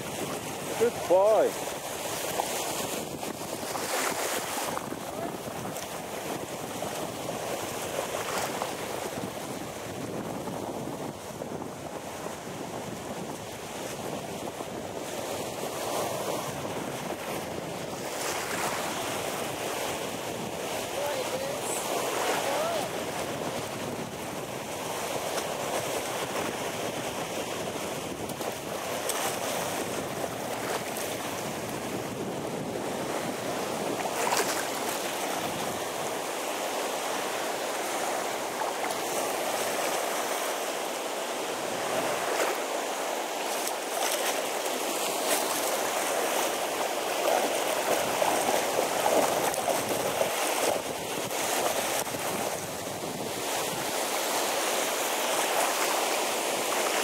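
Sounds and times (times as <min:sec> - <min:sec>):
water lapping on pebble shore: 0:21.0 - 0:23.0.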